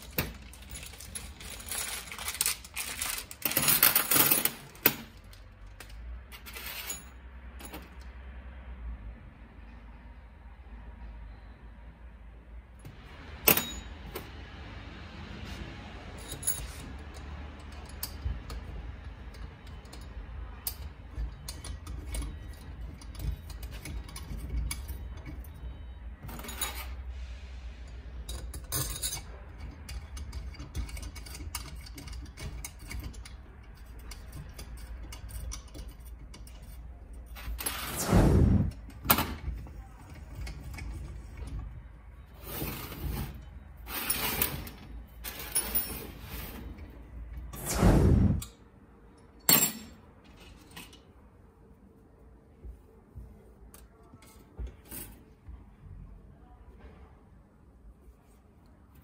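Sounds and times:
metal parts clicking and clinking: 0.0 - 8.1, 16.1 - 27.0, 27.8 - 37.9, 38.7 - 41.8, 42.4 - 47.0, 49.4 - 51.1.

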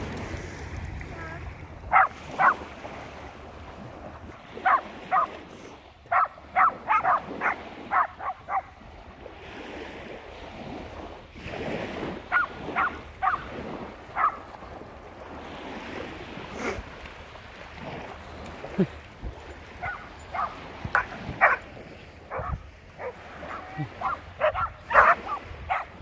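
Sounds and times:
small waves: 0.0 - 26.0
wind: 0.0 - 26.0
dog barking sharply: 1.9 - 2.6, 4.6 - 5.3, 6.1 - 8.7, 12.3 - 13.5, 14.2 - 14.4, 19.8 - 21.6, 22.3 - 26.0.

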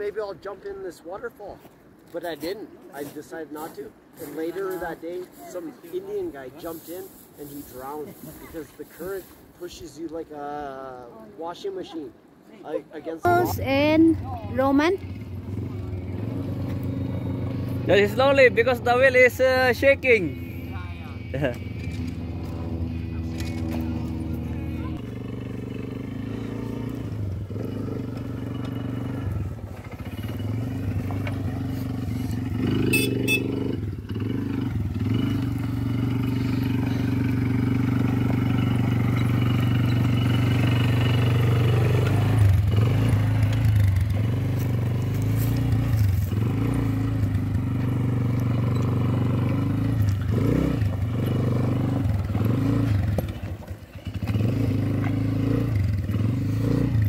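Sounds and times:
quad engine running: 13.3 - 57.0.

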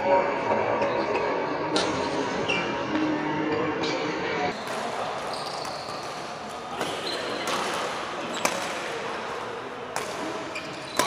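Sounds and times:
hum of echoing hall: 0.0 - 11.0
rackets hitting shuttlecock: 4.6 - 11.0.

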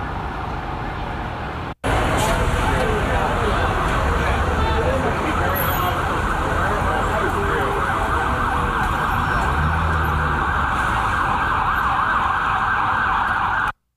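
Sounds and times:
low traffic rumble: 0.0 - 13.8
emergency sirens wailing: 1.9 - 13.8.

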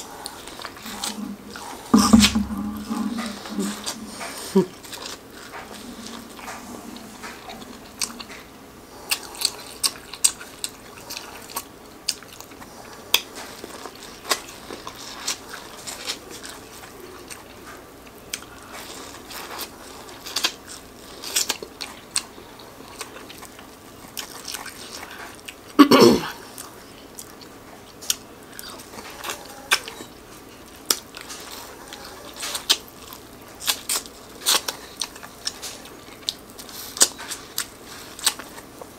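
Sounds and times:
wet mouth sounds: 0.6 - 4.9.

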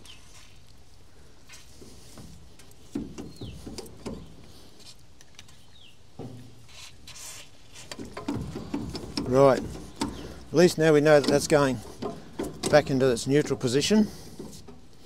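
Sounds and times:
bird chirping: 0.0 - 0.5, 3.1 - 4.6, 5.3 - 6.4, 8.4 - 13.9
metal lever clunks and knocks: 2.9 - 4.4, 7.9 - 14.9.

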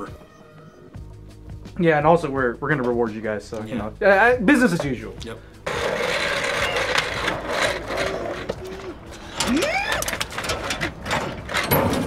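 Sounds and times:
chair casters rolling on asphalt: 5.6 - 12.0
short rising voice cry: 8.6 - 10.1.

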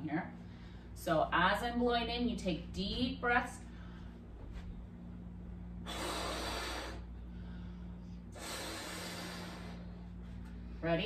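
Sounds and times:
breaths blowing up a balloon: 5.8 - 7.1, 8.3 - 9.9.

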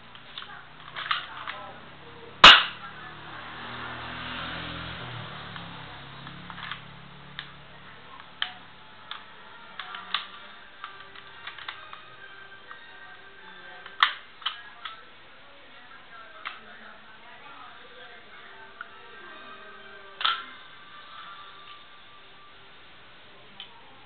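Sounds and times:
pistol parts clicking: 0.1 - 1.6, 8.2 - 12.1, 13.8 - 15.0, 20.2 - 20.6
airsoft pistol shot: 2.4 - 2.8.

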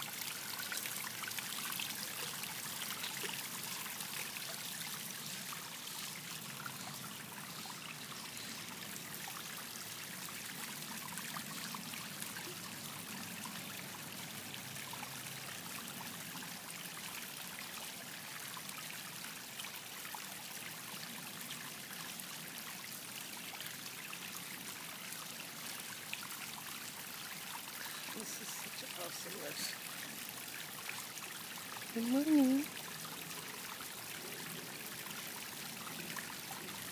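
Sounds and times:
water trickling over stone fountain: 0.0 - 36.9.

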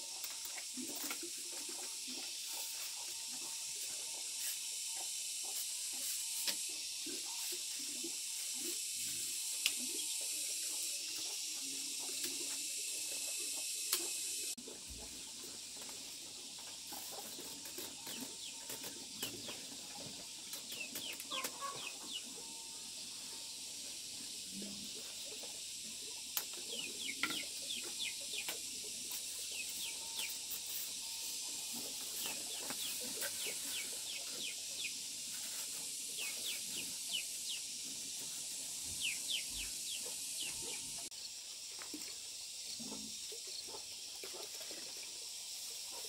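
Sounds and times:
steady high hiss: 0.0 - 43.6
chickens clucking: 16.7 - 22.6, 26.4 - 37.6.

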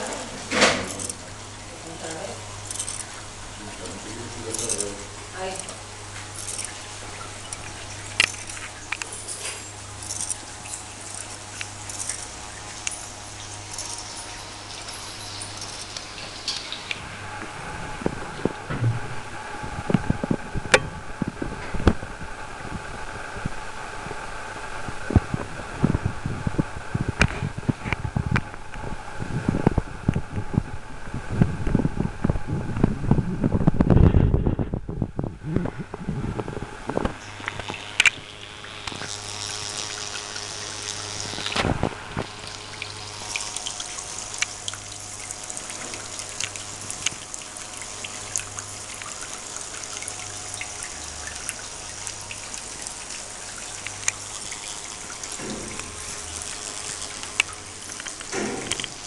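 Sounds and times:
fine high hiss: 0.0 - 17.3, 36.2 - 59.0
water feature trickling: 0.0 - 18.7, 35.7 - 59.0.

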